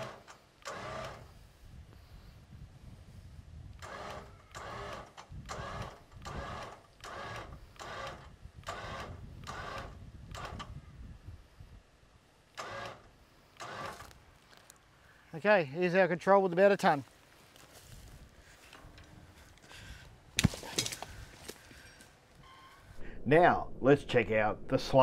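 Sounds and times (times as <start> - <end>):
winch motor whirring: 0.0 - 1.3, 3.8 - 10.7, 12.5 - 14.1
low rumble: 22.9 - 25.0.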